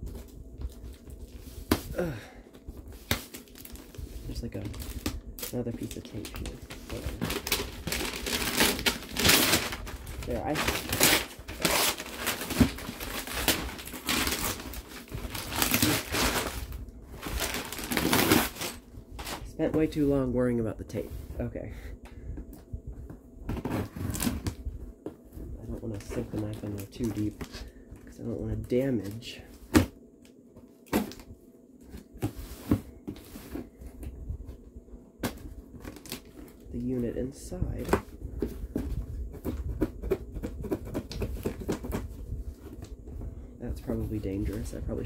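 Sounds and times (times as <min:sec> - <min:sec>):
paper crinkling and rustling: 0:02.8 - 0:19.5, 0:35.2 - 0:37.2.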